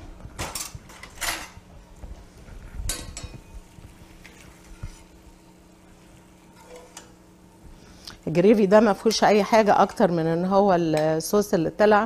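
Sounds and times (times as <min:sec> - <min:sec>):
steady low hum: 0:00.0 - 0:12.0
ladle clinking and scraping in pan: 0:06.5 - 0:07.2.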